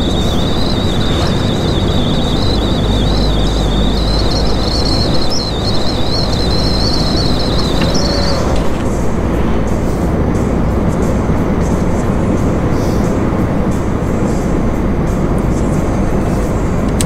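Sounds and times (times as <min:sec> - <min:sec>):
thin high whine: 0:00.0 - 0:09.2
road rumble: 0:00.0 - 0:17.0
truck engine drone: 0:00.0 - 0:17.0.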